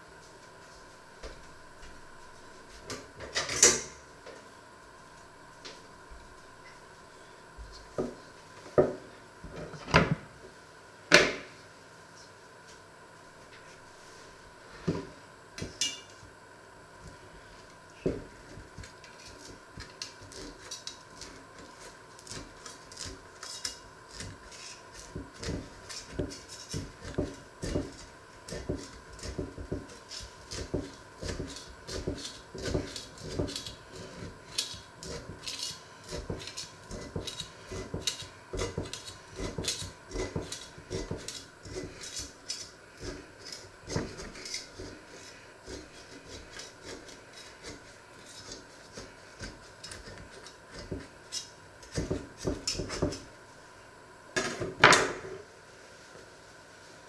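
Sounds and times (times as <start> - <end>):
knife scraping inside a pot: 19.0 - 53.3.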